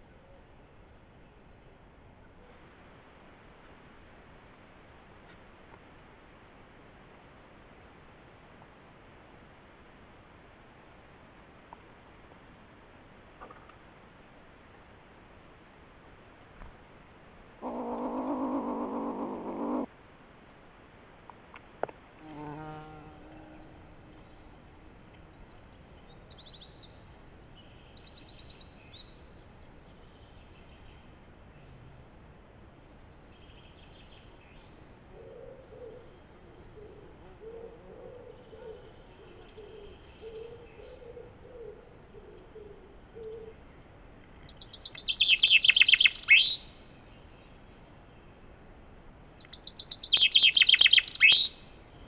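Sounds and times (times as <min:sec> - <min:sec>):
buzzing fluttering animal growl: 0:17.6 - 0:19.9, 0:22.2 - 0:24.5
pigeon cooing: 0:17.6 - 0:19.9, 0:35.1 - 0:43.6
soft pitched animal call: 0:17.6 - 0:19.9, 0:22.2 - 0:24.5
songbird chirps: 0:22.2 - 0:31.8, 0:36.6 - 0:48.6, 0:49.3 - 0:52.0.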